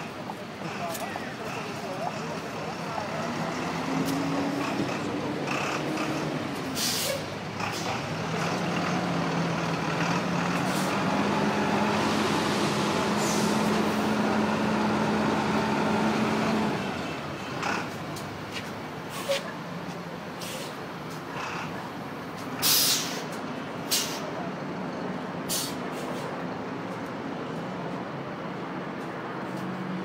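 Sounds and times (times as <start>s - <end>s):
short hiss: 22.6s - 23.3s, 25.5s - 26.2s.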